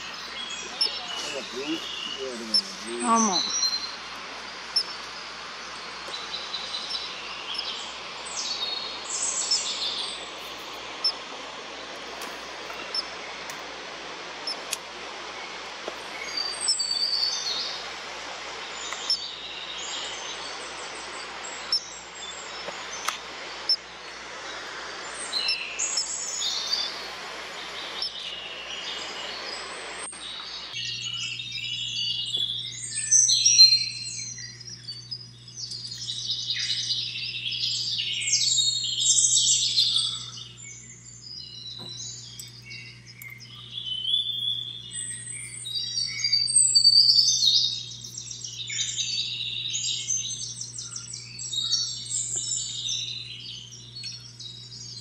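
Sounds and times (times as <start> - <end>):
steady rushing background noise: 0.0 - 30.8
small birds chirping: 0.0 - 55.0.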